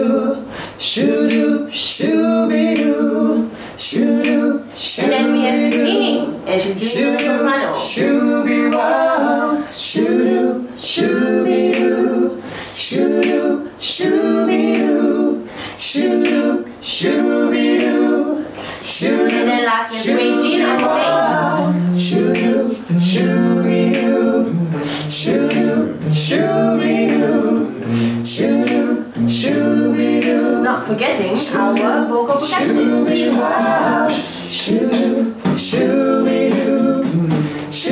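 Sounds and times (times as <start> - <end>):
a cappella group singing: 0.0 - 37.9
low bass line voice: 24.4 - 28.3.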